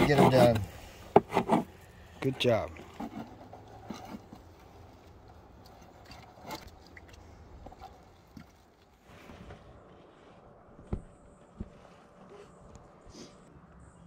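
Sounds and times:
knives cutting on wooden boards: 0.0s - 1.7s.

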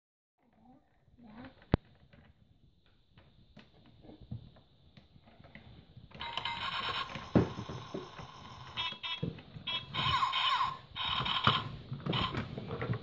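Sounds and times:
toy electronic sound effect: 6.2s - 12.5s.

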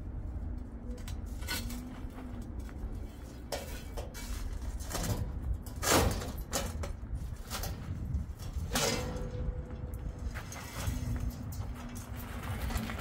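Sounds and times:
metal scraping: 0.9s - 13.0s
metal knocks and clanks: 3.0s - 13.0s.

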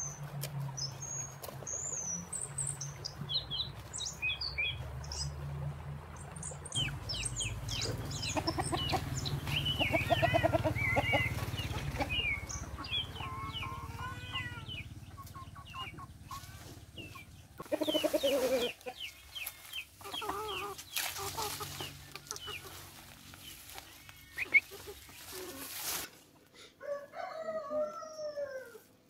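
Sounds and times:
small birds chirping: 0.0s - 5.4s, 6.0s - 25.8s
chickens clucking and calling: 6.7s - 29.0s.

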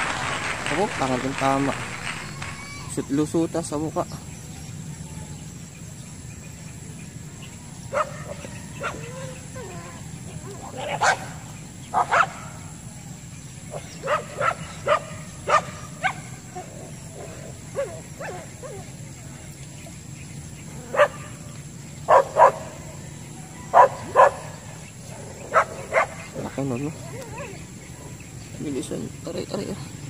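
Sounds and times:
steady low hum: 0.0s - 30.0s
dog barking: 7.9s - 9.8s, 10.7s - 12.6s, 13.7s - 18.8s, 20.8s - 21.3s, 22.1s - 22.8s, 23.7s - 24.6s, 25.4s - 26.4s.

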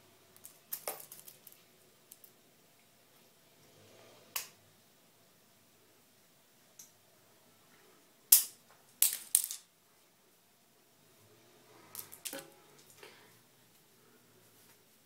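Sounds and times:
small hard objects clicking: 0.4s - 2.3s, 8.3s - 9.7s.

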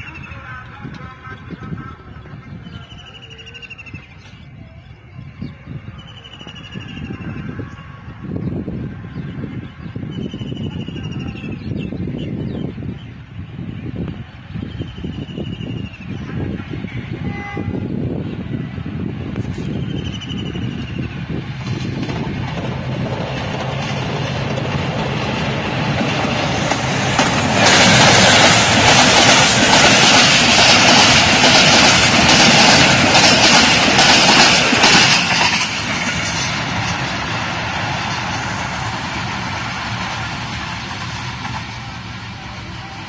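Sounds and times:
diesel locomotive engine drone: 0.0s - 43.0s
train wheels rattling and clattering: 19.3s - 42.4s.

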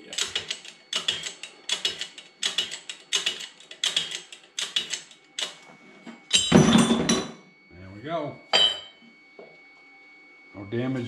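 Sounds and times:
hydraulic press metallic clicking: 0.2s - 5.6s.

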